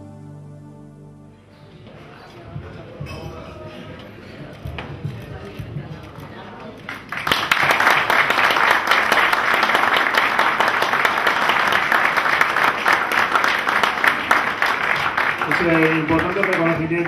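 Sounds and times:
audience applauding: 6.8s - 17.0s.

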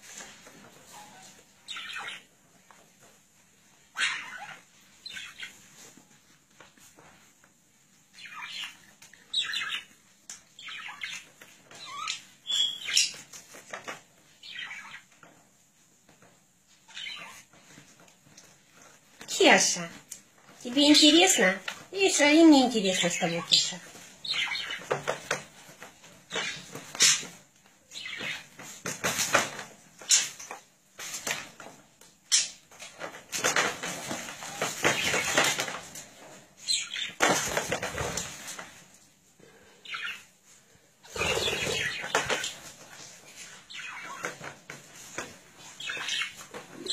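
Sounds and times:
budgerigar squawking and chirping: 4.0s - 5.5s.

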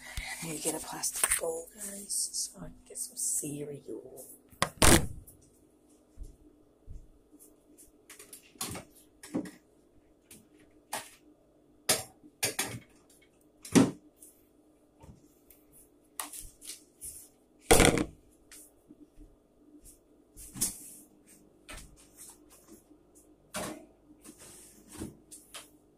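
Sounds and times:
faint steady hum: 0.0s - 25.9s
knocks and clatters of kitchen items: 11.9s - 13.1s, 17.7s - 18.2s.

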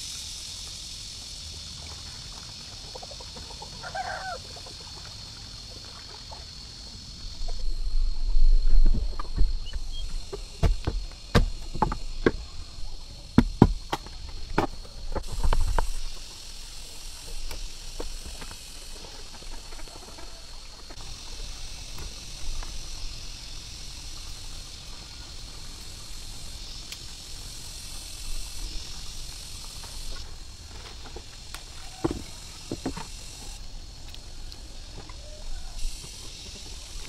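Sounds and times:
insects buzzing: 0.0s - 37.0s
knife chopping bamboo: 10.6s - 12.4s.

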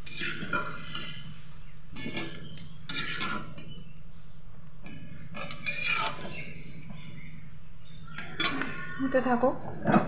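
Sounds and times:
metal spatula scraping pan: 0.0s - 4.0s, 4.9s - 6.8s, 8.1s - 10.0s.

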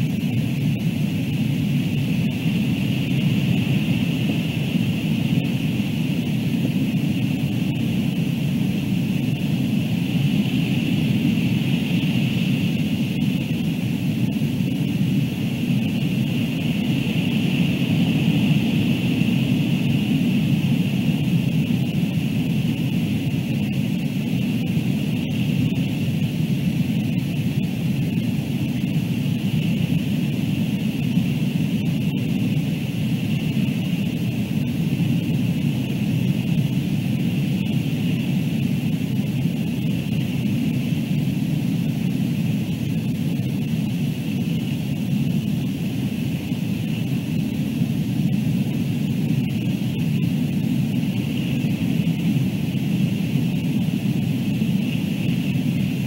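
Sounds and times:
wind noise on microphone: 0.0s - 56.0s.

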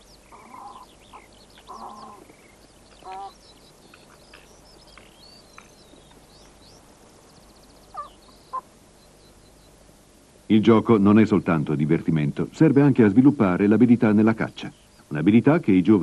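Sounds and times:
fox cubs yelping and squealing: 0.0s - 6.6s, 7.9s - 8.7s.

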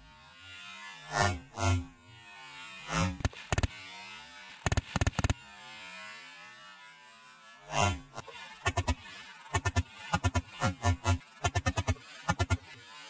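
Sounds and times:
small-calibre automatic gunfire: 3.2s - 3.7s, 4.6s - 5.4s.

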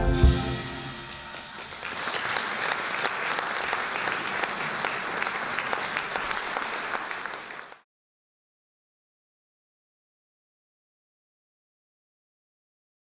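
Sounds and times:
audience applauding: 0.9s - 7.8s.

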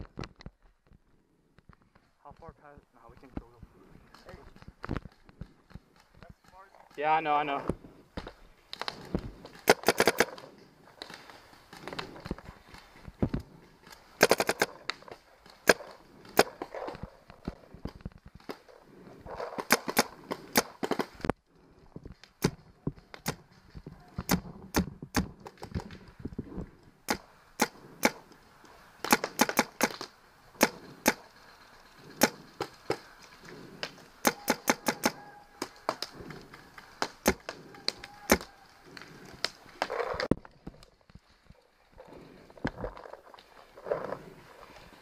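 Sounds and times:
paintball markers firing: 9.6s - 11.2s, 14.2s - 17.0s, 19.4s - 21.2s, 27.1s - 28.4s, 29.0s - 31.2s, 32.0s - 33.0s, 33.8s - 36.4s, 37.0s - 38.5s.

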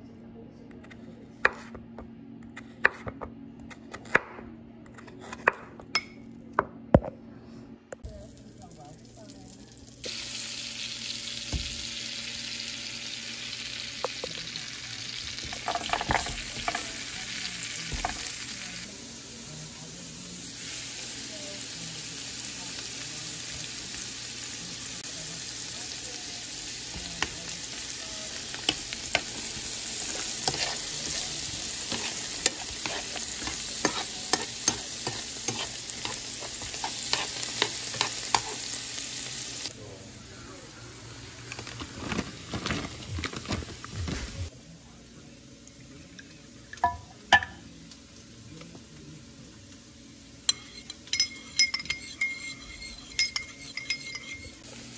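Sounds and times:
vegetables frying: 8.1s - 44.5s, 54.6s - 54.9s
butter sizzling in frying pan: 8.3s - 39.7s
wooden spoon scraping pan: 30.3s - 38.6s.

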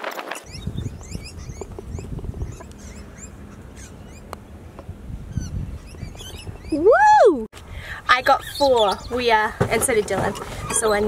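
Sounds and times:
small birds chirping: 0.4s - 6.8s, 8.0s - 9.6s
wind rumble on microphone: 0.4s - 11.0s.

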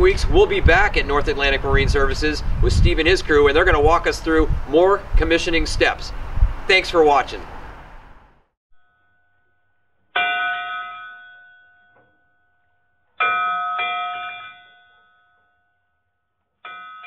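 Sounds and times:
bell ringing: 10.2s - 12.6s, 13.2s - 15.7s.

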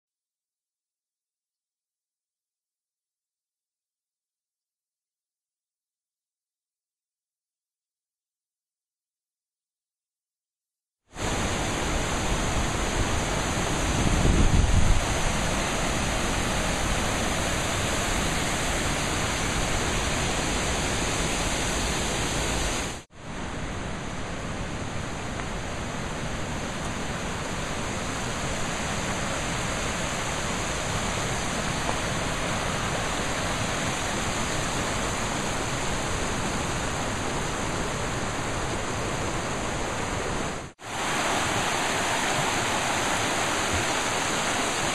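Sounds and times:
river rushing over rocks: 11.2s - 44.9s.

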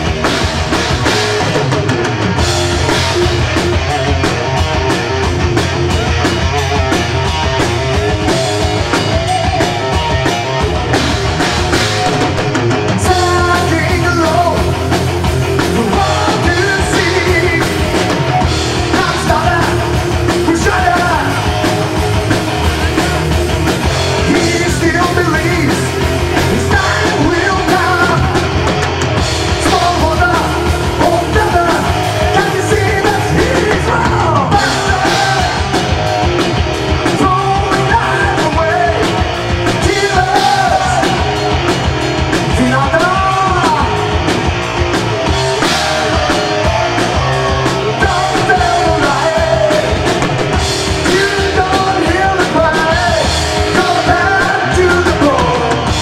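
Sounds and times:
heavy metal band playing: 0.0s - 56.0s
man singing: 12.9s - 36.3s, 37.0s - 41.6s, 42.3s - 44.2s, 45.1s - 56.0s.

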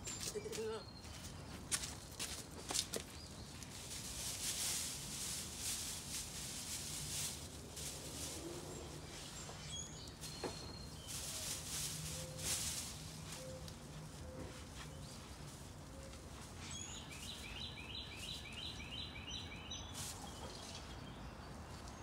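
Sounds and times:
bird chirps: 8.8s - 15.3s, 16.0s - 21.6s.

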